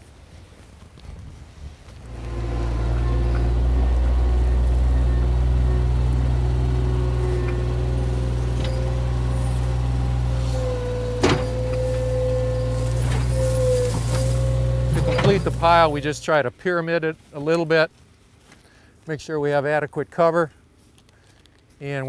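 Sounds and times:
loader engine running: 0:02.0 - 0:16.4
steady whine: 0:02.0 - 0:16.6.

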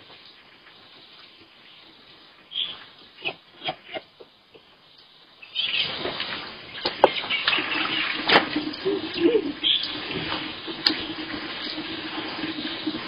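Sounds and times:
water splashing onto ground: 0:05.7 - 0:13.0.

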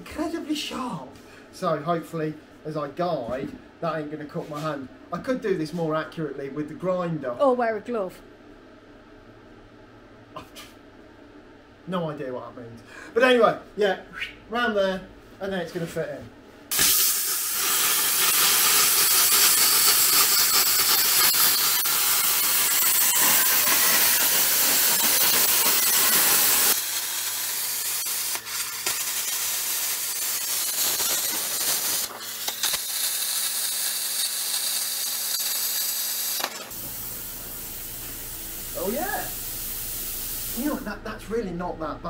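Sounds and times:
plasma cutter hissing: 0:16.7 - 0:40.9
low steady hum: 0:36.8 - 0:42.0.

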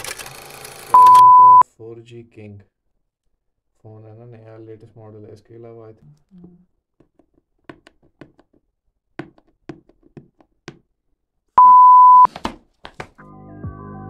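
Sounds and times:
electronic beep: 0:01.0 - 0:01.6, 0:11.6 - 0:12.3
music: 0:13.2 - 0:14.0.

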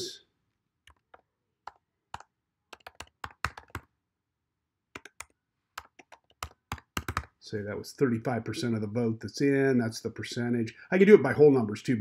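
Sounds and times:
typing on keyboard: 0:00.9 - 0:03.9, 0:04.9 - 0:07.4.

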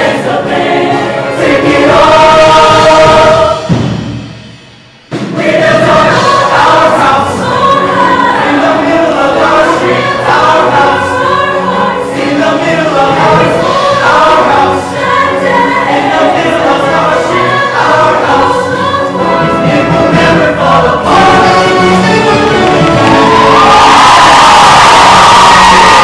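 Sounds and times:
choir singing in harmony: 0:00.0 - 0:04.5, 0:05.1 - 0:26.0
musical backing: 0:00.0 - 0:26.0.

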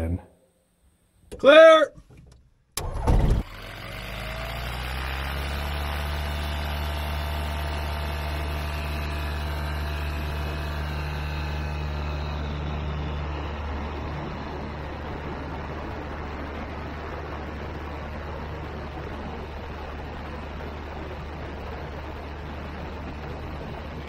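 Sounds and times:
aircraft piston engine starting: 0:02.8 - 0:24.0.

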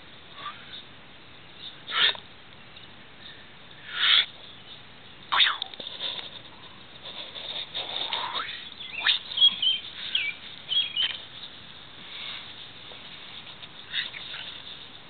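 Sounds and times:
small birds chirping: 0:00.3 - 0:15.0
rustling in grass: 0:02.9 - 0:15.0
falling bird whistles: 0:08.4 - 0:11.2.

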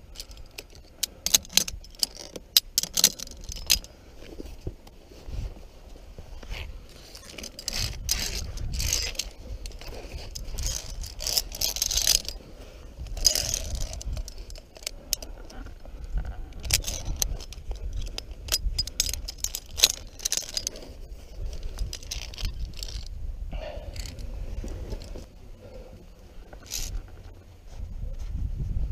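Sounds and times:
carabiners clicking on steel cable: 0:00.0 - 0:04.6, 0:06.4 - 0:27.4
gloves scraping over rock: 0:03.1 - 0:28.3.

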